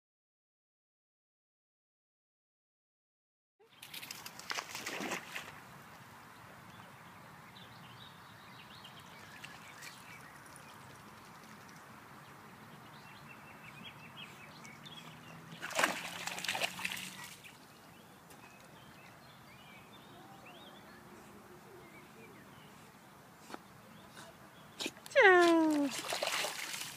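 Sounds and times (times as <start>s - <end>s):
dog splashing in water: 3.8s - 5.6s, 15.3s - 17.6s, 25.2s - 26.9s.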